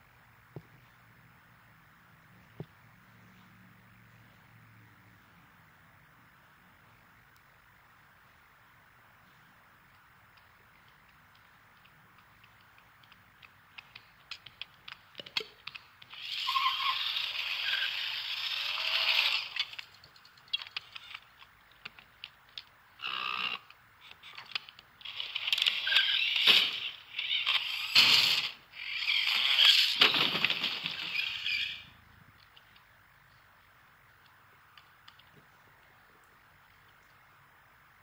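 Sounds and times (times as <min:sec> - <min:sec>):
light clicks and ticks: 0:09.2 - 0:16.3, 0:19.6 - 0:22.9, 0:32.3 - 0:37.4
bursts of hissing noise: 0:16.0 - 0:20.0, 0:25.0 - 0:31.9.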